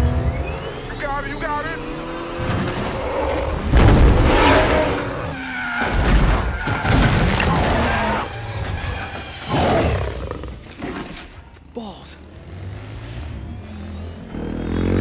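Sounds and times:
car engine: 0.0s - 9.5s
film music: 0.0s - 15.0s
heavy crashes and thuds: 3.6s - 5.1s.

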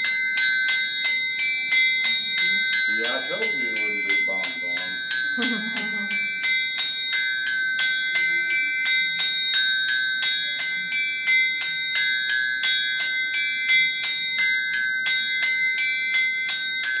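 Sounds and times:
hammers ringing on anvil: 0.0s - 17.0s.

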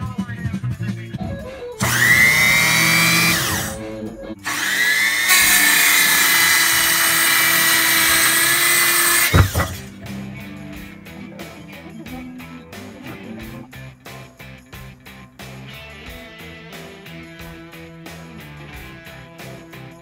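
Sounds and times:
circular saw whining: 1.4s - 10.0s
saw cutting through wood: 1.8s - 10.0s.

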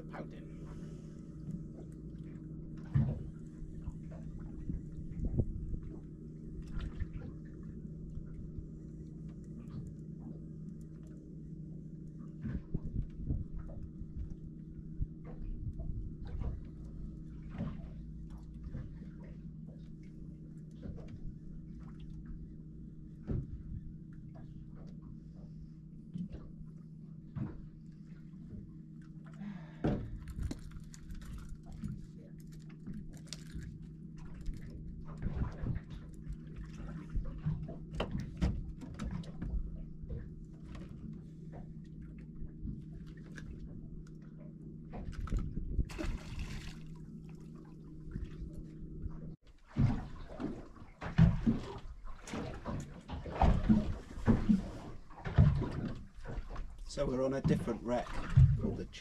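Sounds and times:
steady low hum: 0.0s - 59.0s
water sloshing against boat hull: 0.0s - 59.0s
irregular splashing: 44.9s - 59.0s.

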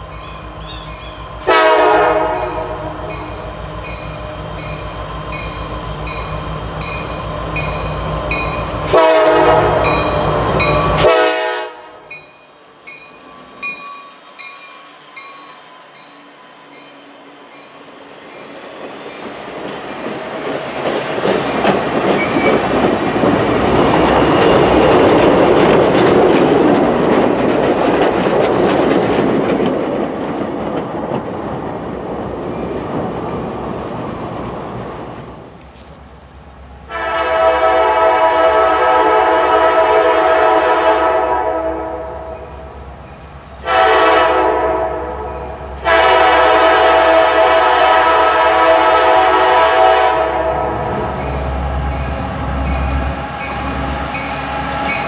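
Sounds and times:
distant locomotive horn: 0.2s - 3.8s, 7.8s - 12.2s, 36.9s - 42.6s, 43.6s - 53.9s
train wheels clattering on rails: 0.2s - 11.5s, 16.8s - 36.5s, 50.4s - 55.0s.

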